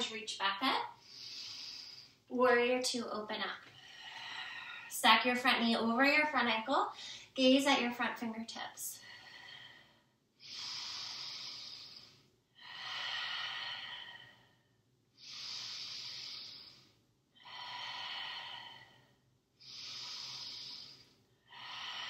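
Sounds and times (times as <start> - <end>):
woman breathing slowly: 0.9 - 2.3, 3.6 - 5.0, 6.9 - 7.4, 8.9 - 22.0.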